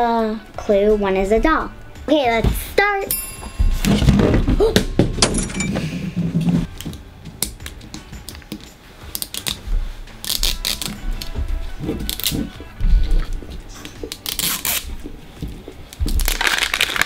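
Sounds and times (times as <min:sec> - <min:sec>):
fingers peeling sticker: 0:10.2 - 0:12.6, 0:14.0 - 0:15.0
plastic crinkling and clicking: 0:15.9 - 0:17.0.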